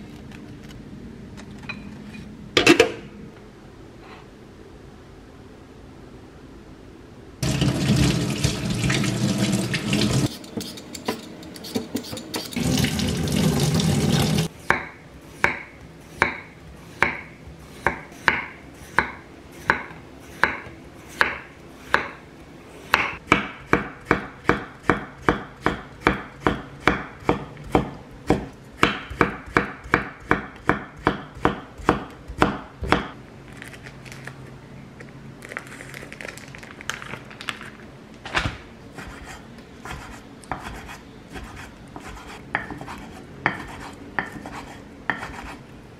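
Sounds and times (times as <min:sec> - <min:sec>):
tap water running: 0:07.4 - 0:10.3, 0:12.4 - 0:14.5.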